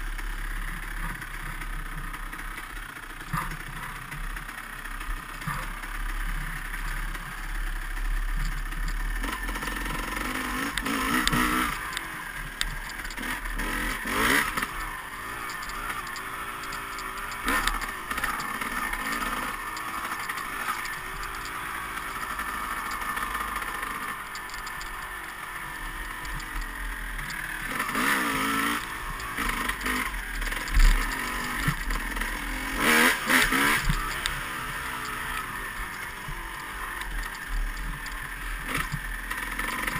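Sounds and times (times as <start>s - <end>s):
dirt bike engine revving: 0.0s - 39.9s
bike knocks and rattles: 2.9s - 7.3s.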